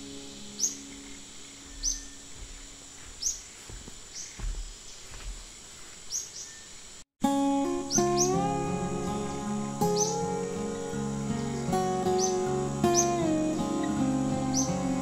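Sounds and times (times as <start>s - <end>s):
acoustic guitar music: 0.0s - 3.0s, 7.2s - 15.0s
high falling bird chirps: 0.0s - 7.0s, 7.9s - 15.0s
high insect whine: 0.0s - 7.0s, 7.9s - 15.0s.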